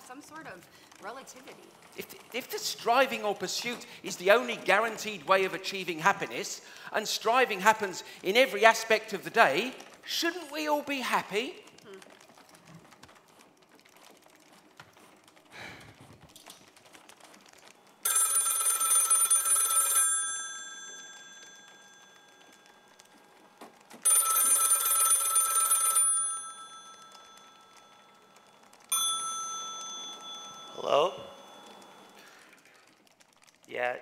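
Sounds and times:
desk telephone ringing: 0:18.0 - 0:32.5.

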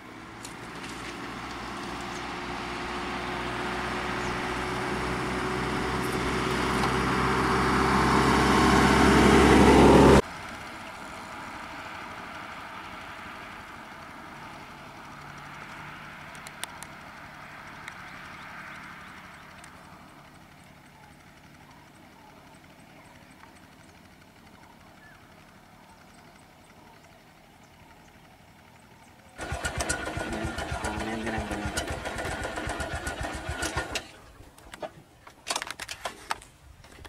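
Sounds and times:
motorcycle engine revving: 0:00.0 - 0:10.7, 0:29.3 - 0:34.2
motorcycle engines idling faintly: 0:10.3 - 0:37.0.

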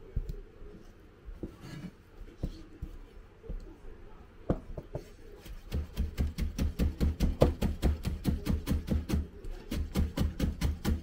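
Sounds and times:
knife chopping on cutting board: 0:04.8 - 0:11.0.

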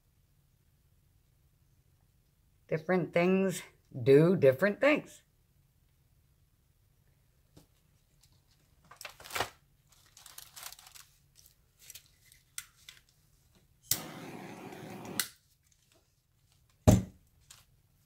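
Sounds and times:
crinkling and rustling: 0:07.5 - 0:13.7, 0:15.4 - 0:18.0.

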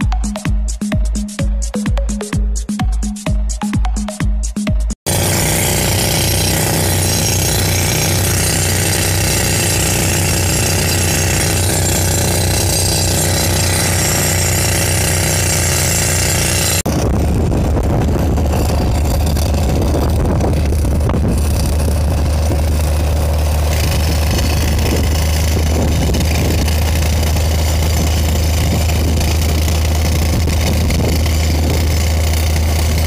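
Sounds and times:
diesel engine running: 0:05.1 - 0:33.0
rock drill hammering into stone: 0:05.1 - 0:33.0.

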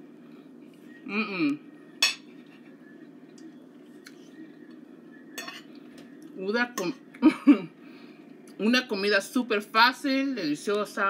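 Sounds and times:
low hum: 0:00.0 - 0:10.9
forks clinking on plates: 0:02.0 - 0:02.3, 0:05.3 - 0:05.7.

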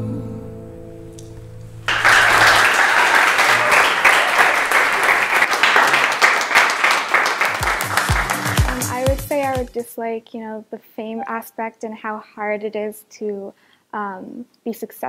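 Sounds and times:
audience applause: 0:01.9 - 0:09.7.

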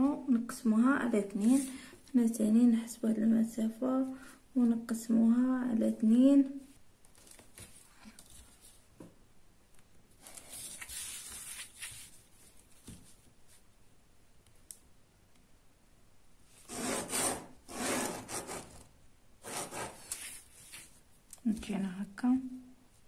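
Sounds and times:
ruler sliding over paper: 0:16.6 - 0:18.8, 0:19.4 - 0:20.9.

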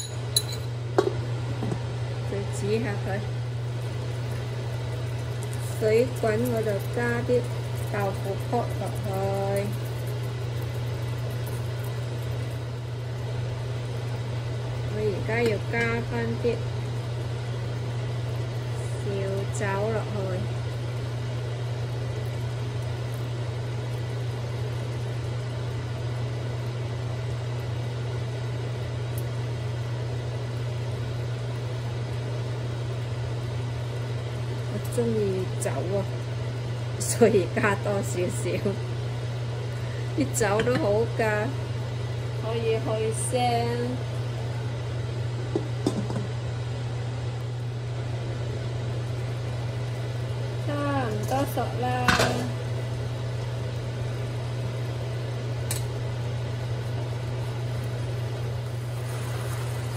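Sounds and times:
glass lid clinking on wok: 0:00.0 - 0:00.7
kitchen appliance humming: 0:00.0 - 0:59.9
wok simmering: 0:00.0 - 0:59.9.

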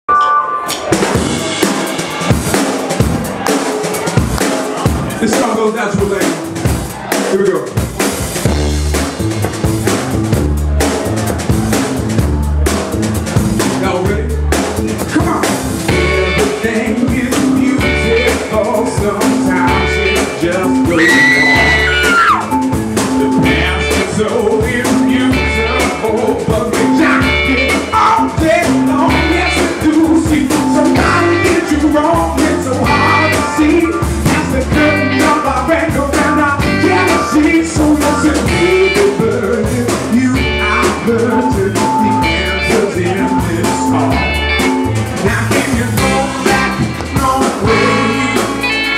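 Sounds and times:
live soul band playing: 0:00.1 - 0:48.9
person singing: 0:15.2 - 0:48.9.

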